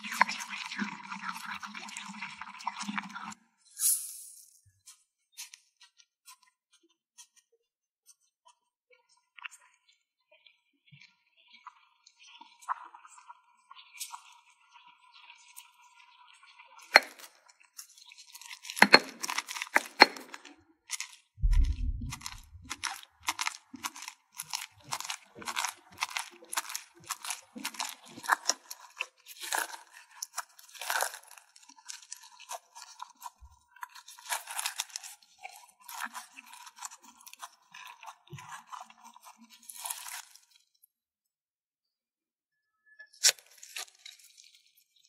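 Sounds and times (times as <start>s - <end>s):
slime crackling and crunching: 18.0s - 40.6s.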